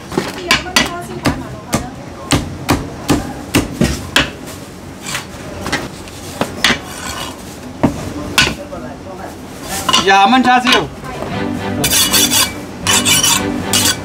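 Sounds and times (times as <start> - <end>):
blade scraping across board: 11.8 - 14.0.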